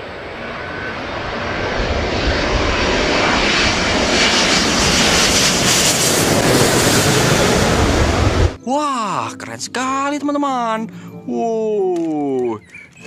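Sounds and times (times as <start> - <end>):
jet airliner engines overhead: 0.0 - 8.6, 12.6 - 13.0.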